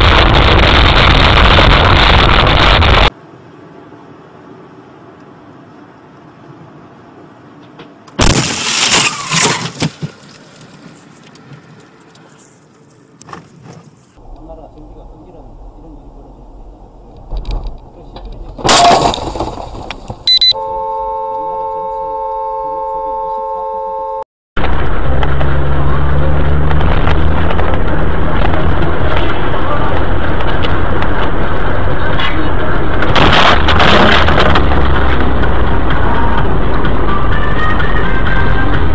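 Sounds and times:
road noise inside car: 0.0 - 38.9
glass breaking: 8.2 - 10.0, 18.6 - 19.8
loud crash on windshield: 8.2 - 10.4, 18.6 - 20.2, 33.0 - 34.9
debris clattering: 8.2 - 10.8, 18.6 - 20.2
heavy object crashing into windshield: 18.6 - 20.2.

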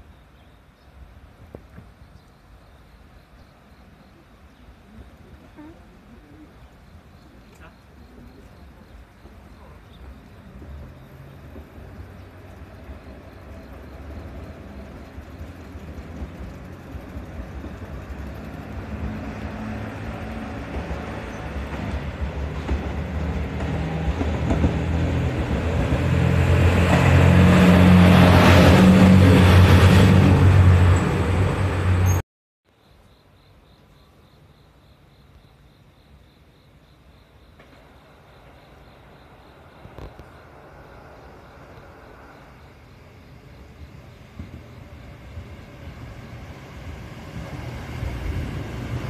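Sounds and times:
diesel train passing: 0.0 - 32.2, 36.5 - 49.0
insect chirping: 2.0 - 22.6, 32.0 - 49.0.

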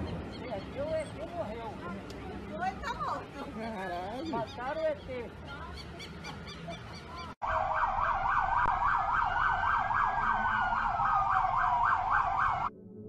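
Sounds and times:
fast yelping siren: 7.4 - 12.7
wailing siren: 7.4 - 13.0.

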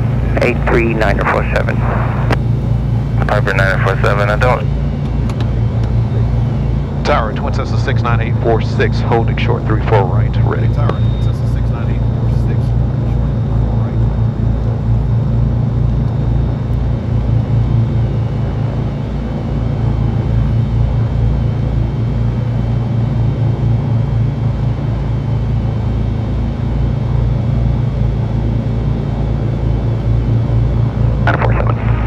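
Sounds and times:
aircraft piston engines idling: 0.0 - 14.3.

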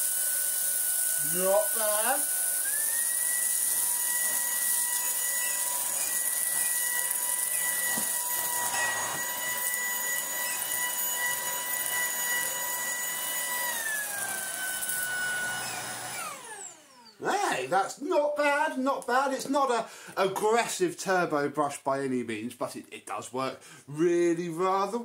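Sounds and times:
vacuum motor whine on carpet: 0.0 - 17.2.

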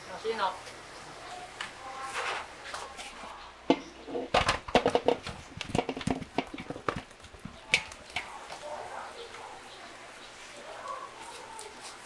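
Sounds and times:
potato chunks thudding into basin: 3.7 - 8.2.

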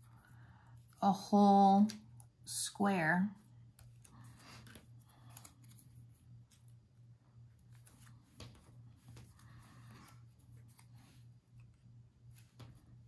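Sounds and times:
low steady hum: 0.0 - 13.0
paper rustling and tapping: 7.6 - 11.0.

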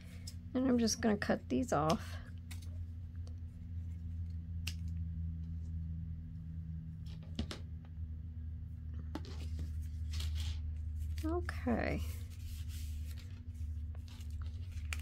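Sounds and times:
steady low hum: 0.0 - 15.0
paper rustling: 9.1 - 15.0.

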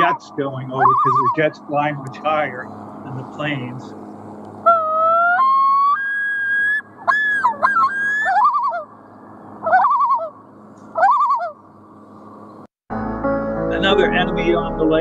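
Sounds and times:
loon calling: 0.0 - 4.0, 4.6 - 11.7.

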